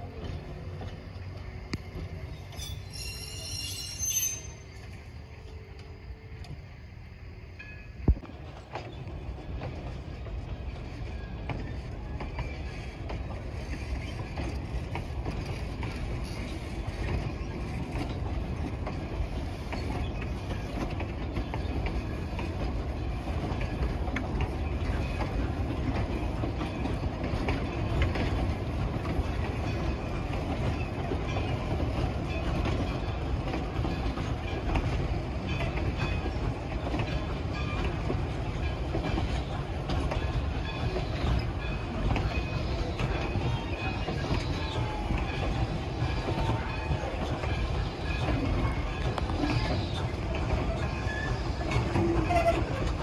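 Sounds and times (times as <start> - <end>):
train rumbling: 0.0 - 53.0.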